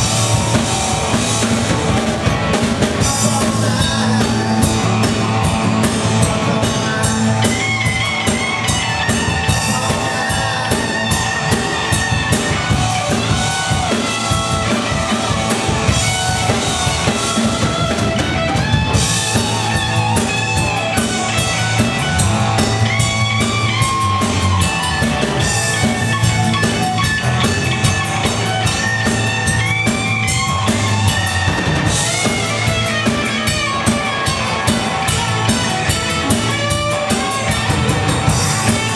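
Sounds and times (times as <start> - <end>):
rock band playing: 0.0 - 38.9.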